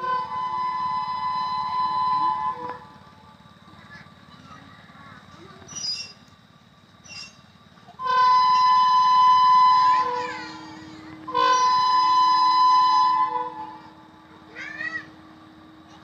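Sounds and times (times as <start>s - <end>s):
locomotive horn blasts: 0.0s - 3.1s, 8.0s - 14.2s.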